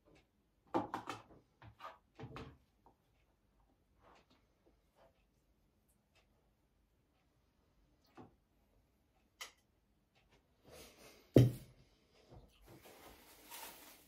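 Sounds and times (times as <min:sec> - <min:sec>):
soft rustling: 0:12.5 - 0:14.0.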